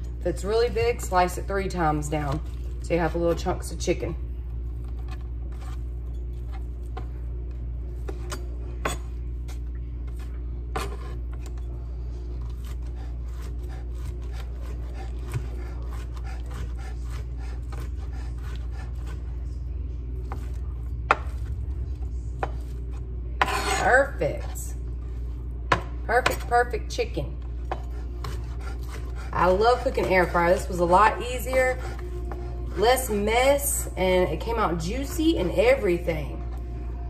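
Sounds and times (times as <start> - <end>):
steady low hum: 0.0 - 37.0
knife chopping on cutting board: 12.6 - 19.2, 23.4 - 24.6.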